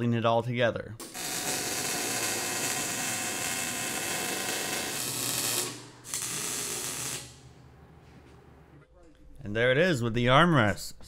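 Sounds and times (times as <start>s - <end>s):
welder crackling: 1.0s - 7.6s.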